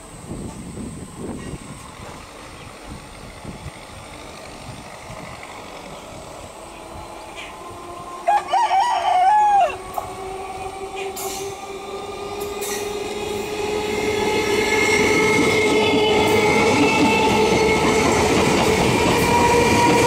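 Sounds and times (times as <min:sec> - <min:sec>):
electric train passing with whine: 0:00.0 - 0:20.0
rooster crowing: 0:08.0 - 0:10.2.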